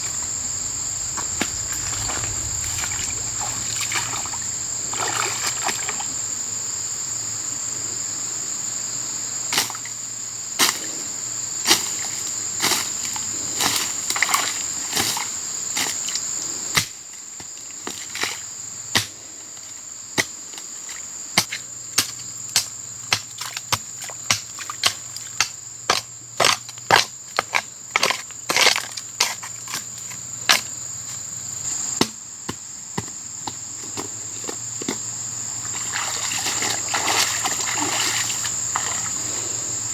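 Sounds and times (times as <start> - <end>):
insects droning: 0.0 - 39.9
hoe chopping into mud: 17.9 - 19.2, 21.4 - 29.4.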